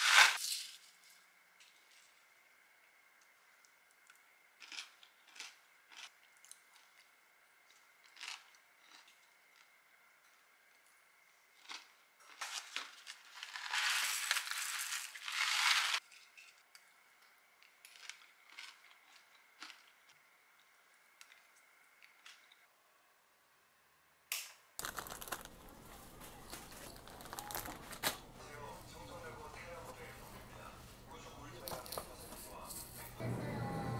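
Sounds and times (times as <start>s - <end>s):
plastic pouch crinkling: 24.8s - 28.2s.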